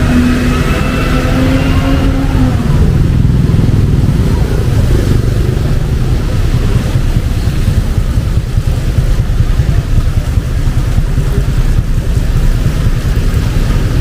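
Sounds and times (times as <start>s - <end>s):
rain hiss: 0.0s - 14.0s
traffic rumble: 0.0s - 14.0s.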